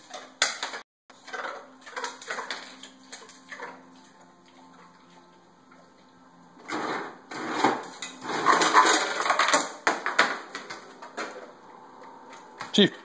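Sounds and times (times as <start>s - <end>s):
ice cubes rattling and crunching: 7.4s - 9.8s.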